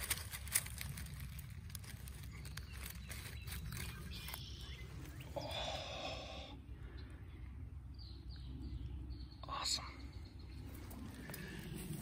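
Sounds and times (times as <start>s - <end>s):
small clicks and snaps of stems: 0.0s - 4.6s
leaves and stems rustling: 0.0s - 5.9s.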